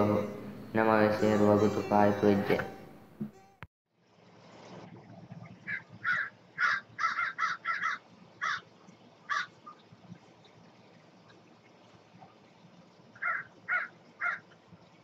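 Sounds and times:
crow cawing: 5.7s - 8.6s, 9.3s - 9.5s, 13.2s - 14.4s.

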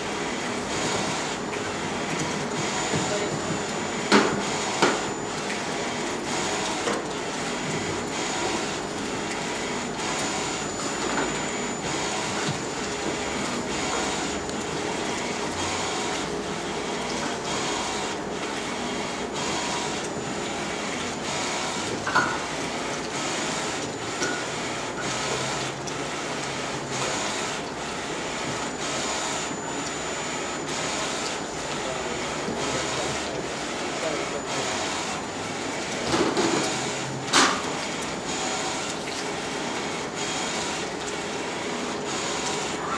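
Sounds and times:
printer carriage whirring: 0.0s - 42.9s.

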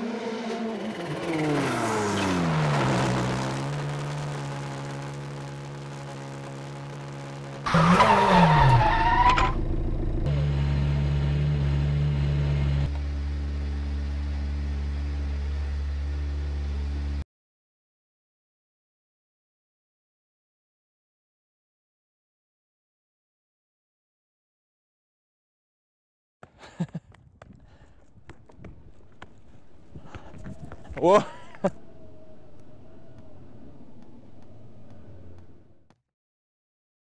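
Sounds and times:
rally car engine: 0.0s - 17.2s, 28.3s - 35.8s
tyre squeal: 7.6s - 9.6s.

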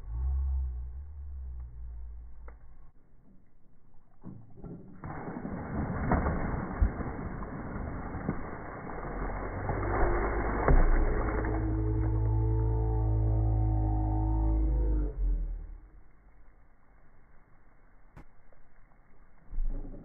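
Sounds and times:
low droning tone: 0.0s - 5.5s, 6.3s - 20.0s
water splashing over dirt and rocks: 3.8s - 13.3s.

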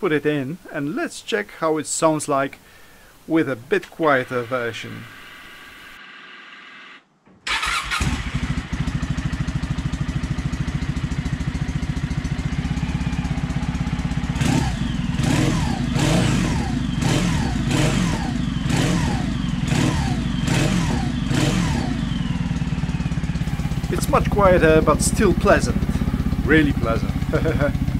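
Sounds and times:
motorcycle engine idling and revving: 7.5s - 27.9s.

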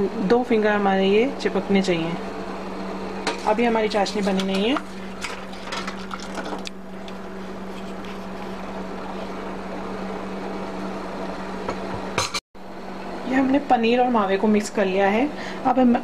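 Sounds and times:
steady low hum: 0.0s - 16.0s
syrup simmering and bubbling: 4.8s - 6.8s.

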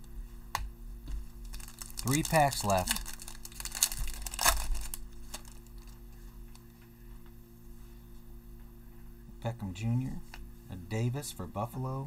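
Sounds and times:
foil wrapper tearing and crinkling: 1.4s - 6.1s.

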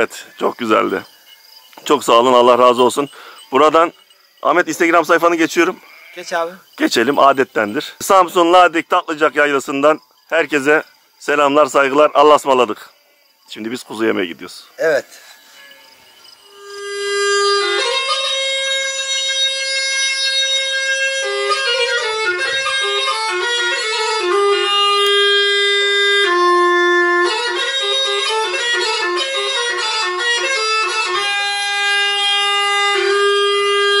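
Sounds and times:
solo wind instrument melody: 15.4s - 34.0s.

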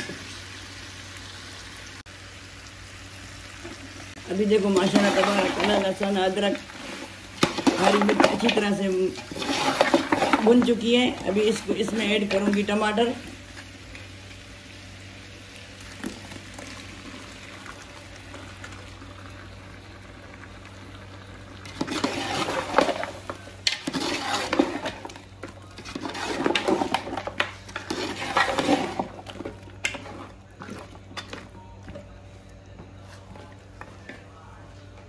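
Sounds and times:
metal spoon stirring in pot: 4.7s - 12.7s, 21.6s - 31.5s
steady low hum: 10.1s - 35.0s.

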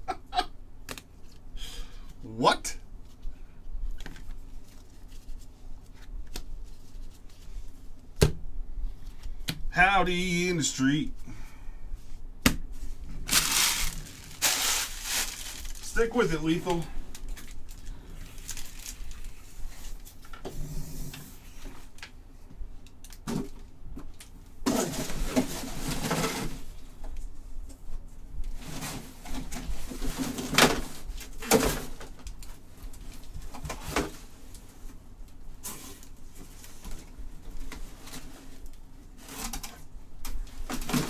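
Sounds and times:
wrappers rustling: 13.2s - 16.3s, 17.1s - 20.2s
cards shuffling: 13.3s - 16.1s.

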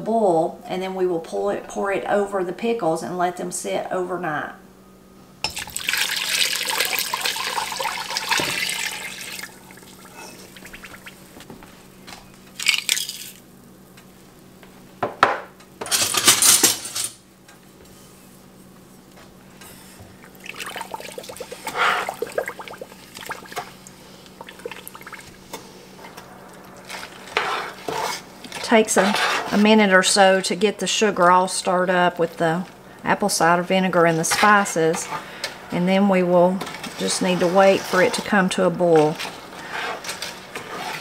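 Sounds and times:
liquid pouring and splashing: 5.5s - 11.3s, 12.6s - 13.4s, 20.2s - 25.4s
spoon stirring and scraping pot: 26.8s - 29.8s.

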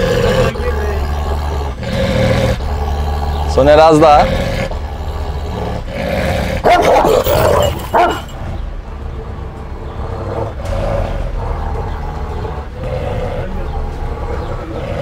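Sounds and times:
dog barking deeply: 0.0s - 8.4s
dog growling: 0.0s - 8.4s, 9.8s - 15.0s.

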